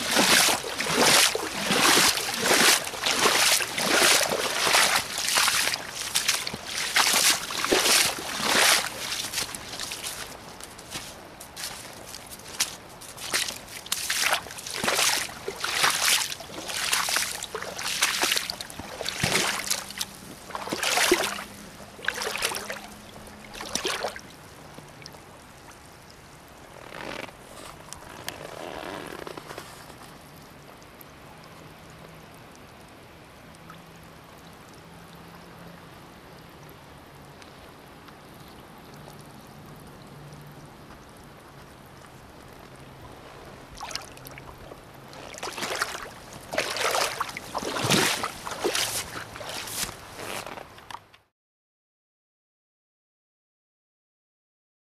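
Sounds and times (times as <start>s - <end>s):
rubber boots splashing through water: 0.0s - 25.2s, 42.4s - 51.0s
water swirling: 0.0s - 25.2s, 42.9s - 50.6s
faint outdoor noise: 0.0s - 51.3s.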